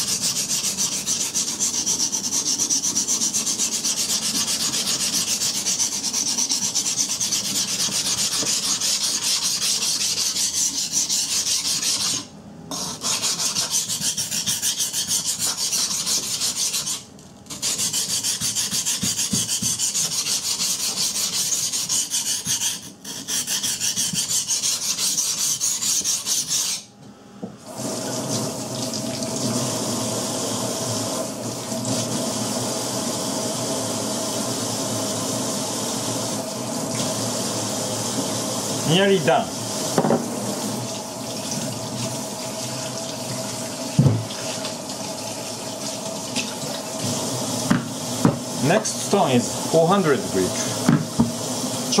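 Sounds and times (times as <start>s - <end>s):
knife on whetstone: 0.0s - 26.9s
tap water running into sink: 28.2s - 29.6s.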